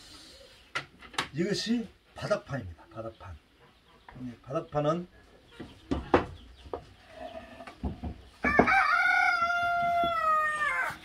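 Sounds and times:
wooden knocks: 0:05.6 - 0:06.9, 0:07.7 - 0:08.9
rooster crowing: 0:08.4 - 0:11.0.

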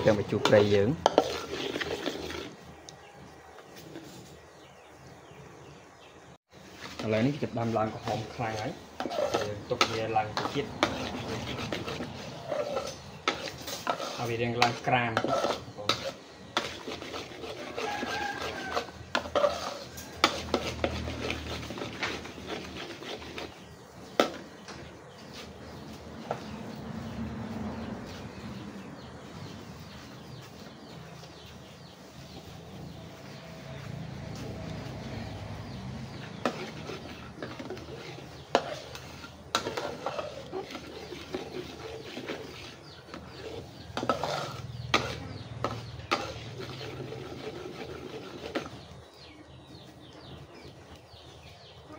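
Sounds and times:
metal spatula scraping a wok: 0:00.0 - 0:02.8, 0:06.5 - 0:51.7.

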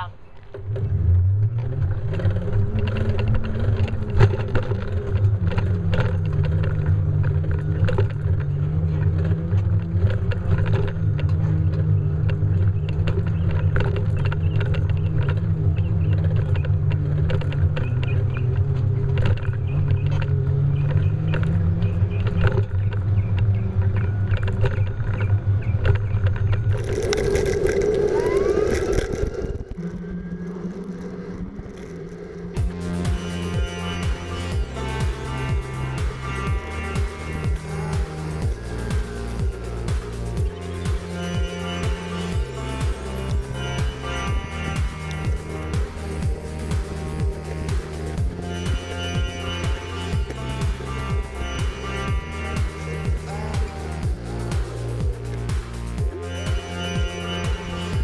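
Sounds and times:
e-bike riding rumble: 0:00.0 - 0:58.0
steady low tone: 0:00.0 - 0:58.0
rushing noise: 0:26.7 - 0:58.0.

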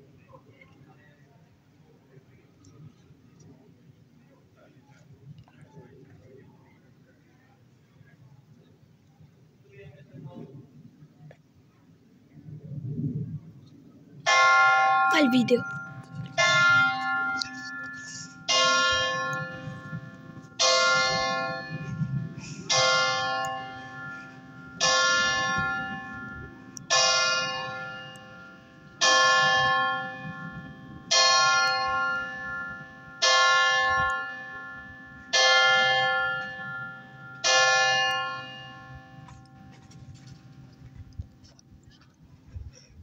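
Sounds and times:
church bell ringing: 0:14.2 - 0:40.8.

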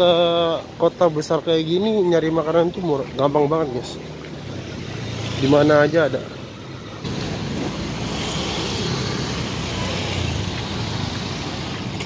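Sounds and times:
street traffic hum: 0:00.0 - 0:12.0
motor scooters riding past: 0:04.0 - 0:12.0.

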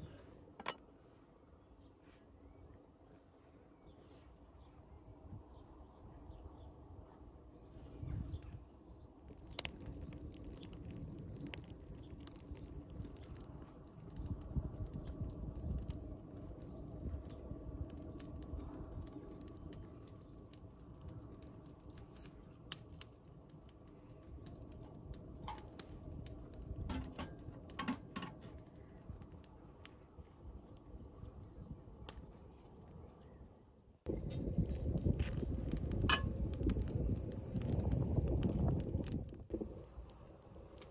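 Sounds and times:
twig fire crackling: 0:07.9 - 0:33.4, 0:34.0 - 0:40.9
sharp snaps and pops: 0:09.2 - 0:30.0, 0:34.1 - 0:40.9
low rumble: 0:34.1 - 0:40.8.

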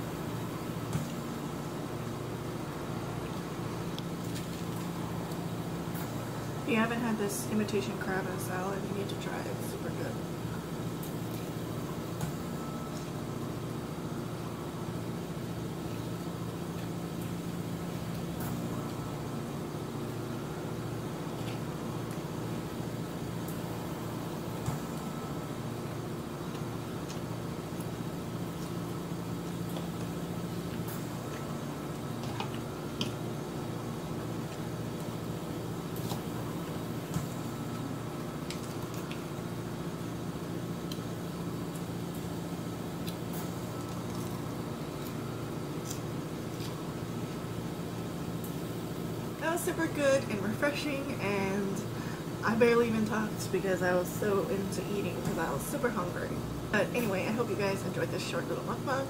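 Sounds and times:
low mechanical hum: 0:00.0 - 0:59.0
lettuce being chewed: 0:26.2 - 0:36.9, 0:37.7 - 0:48.6.

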